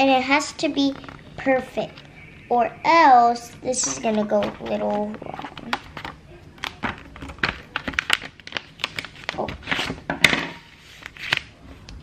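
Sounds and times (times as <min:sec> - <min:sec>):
paper rustling and crinkling: 0:00.8 - 0:01.7, 0:03.7 - 0:10.1, 0:10.7 - 0:11.9.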